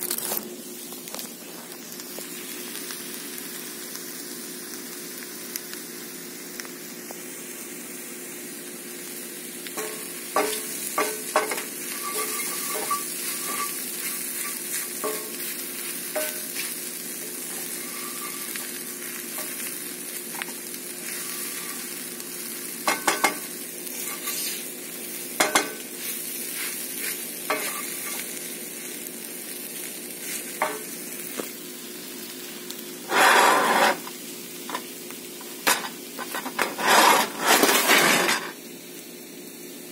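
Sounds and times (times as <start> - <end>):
eggs sizzling in a skillet: 0.0 - 39.9
wooden spoon scraping a pan: 9.8 - 18.8, 20.4 - 22.0, 22.9 - 24.7, 26.5 - 28.2, 33.1 - 34.1, 35.7 - 38.6.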